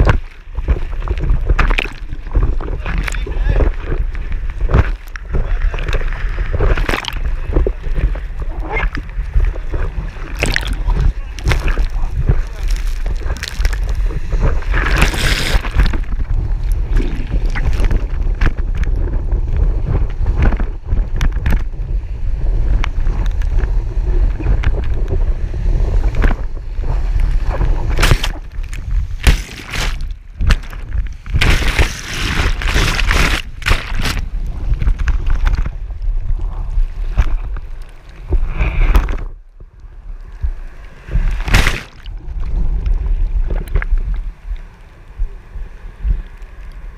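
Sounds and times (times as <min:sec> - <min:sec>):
surf rushing and spray splashing: 0:00.0 - 0:39.3, 0:40.0 - 0:46.9
wind buffeting microphone: 0:00.0 - 0:46.9.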